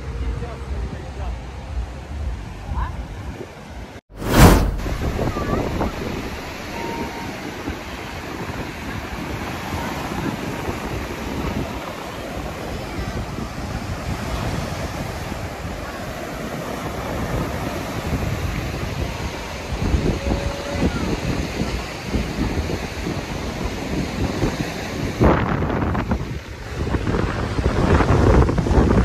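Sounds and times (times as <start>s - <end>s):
waves breaking on beach: 4.2s - 29.0s
wind buffeting microphone: 4.2s - 29.0s.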